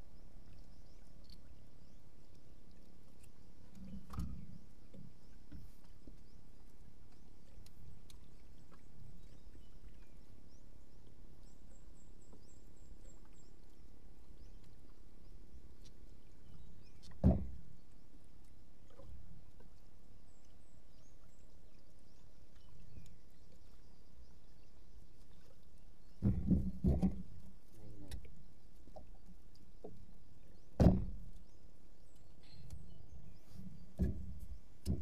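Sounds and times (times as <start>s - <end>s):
water lapping against boat hull: 0.0s - 35.0s
dull thump: 17.2s - 17.6s, 26.2s - 27.3s, 30.8s - 31.3s, 33.9s - 35.0s.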